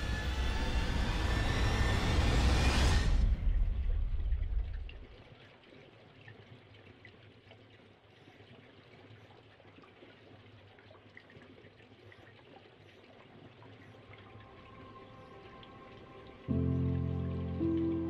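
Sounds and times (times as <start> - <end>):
faint water trickle: 3.6 - 18.0.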